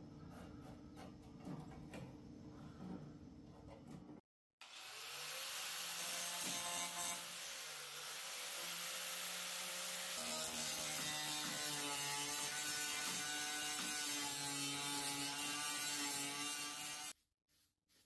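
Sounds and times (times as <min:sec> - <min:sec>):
power tool on sheet metal: 0:04.6 - 0:17.2.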